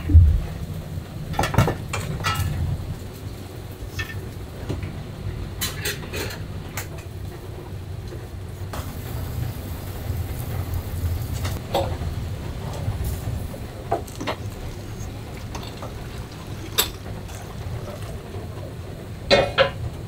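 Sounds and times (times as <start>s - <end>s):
steady low rumble: 0.0s - 3.8s.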